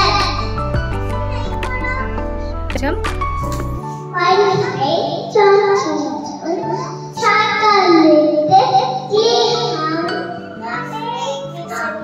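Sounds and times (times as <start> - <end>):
girl singing into microphone: 4.1 - 12.0.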